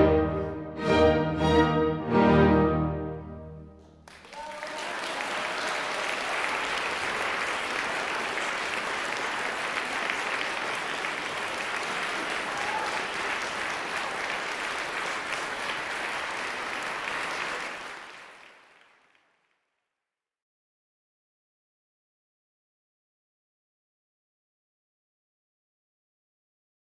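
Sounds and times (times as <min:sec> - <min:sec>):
audience applauding: 0:04.0 - 0:19.7.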